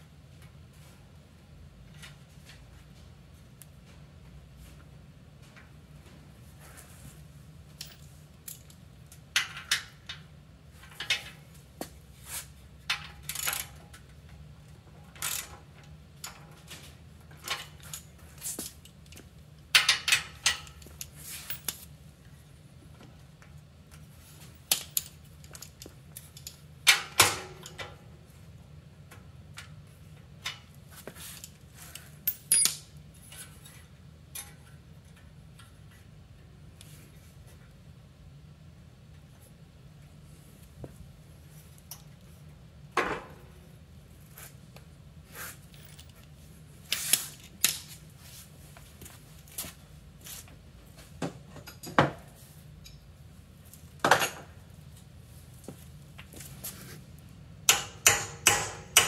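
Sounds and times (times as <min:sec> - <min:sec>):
metal tools clinking: 0:31.3 - 0:32.9.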